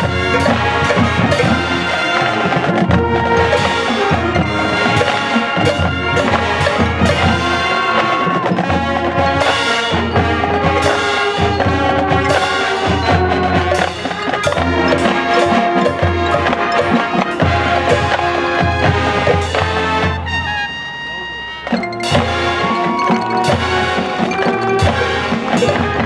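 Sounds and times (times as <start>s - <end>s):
sharp percussion strikes: 0.0s - 20.3s, 21.6s - 26.0s
marching band playing: 0.0s - 26.0s.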